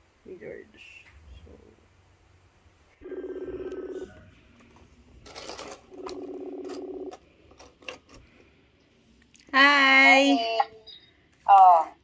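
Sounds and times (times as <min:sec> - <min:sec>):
video call ringing tone: 0:03.0 - 0:04.3, 0:05.6 - 0:07.2.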